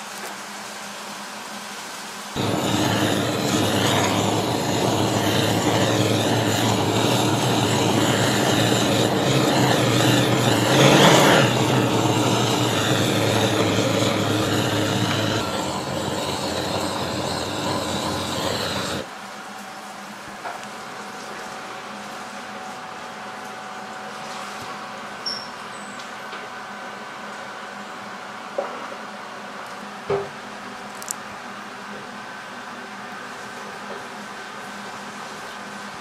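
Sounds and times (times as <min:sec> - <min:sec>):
blowtorch hissing flame: 0:02.4 - 0:19.1.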